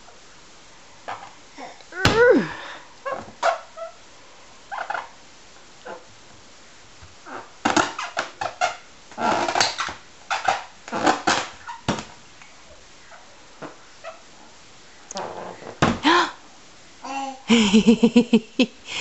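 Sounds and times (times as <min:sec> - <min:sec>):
baby breathy sounds: 0:01.5 - 0:02.9, 0:16.0 - 0:16.4, 0:17.0 - 0:17.6
squeaky balloon rubbing: 0:07.2 - 0:11.9, 0:15.1 - 0:15.8.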